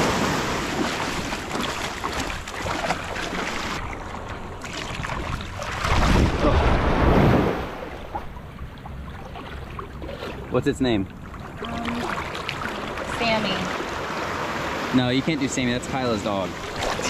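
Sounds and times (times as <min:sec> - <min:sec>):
water splashing in shallow surf: 0:00.0 - 0:17.0
wind buffeting microphone: 0:05.0 - 0:09.1.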